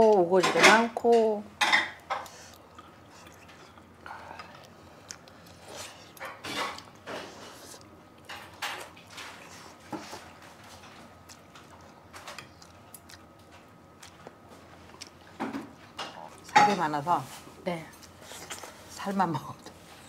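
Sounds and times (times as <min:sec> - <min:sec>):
chewing and mouth noises: 0:02.0 - 0:16.6.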